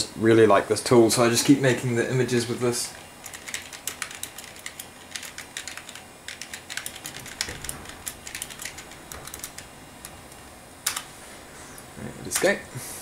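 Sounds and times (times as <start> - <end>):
typing on computer keyboard: 3.2 - 9.7.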